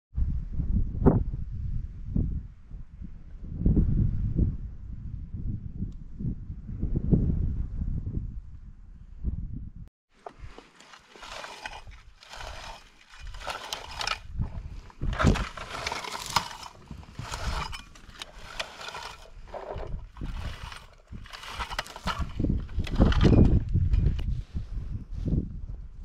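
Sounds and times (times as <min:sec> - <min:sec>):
berry picker raking through bushes: 0:10.4 - 0:23.5.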